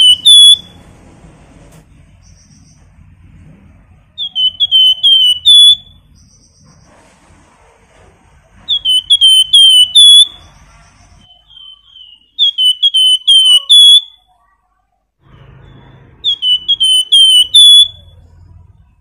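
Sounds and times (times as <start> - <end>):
songbird whistled notes: 0.0 - 0.8, 4.1 - 6.9, 8.6 - 14.3, 15.4 - 18.3.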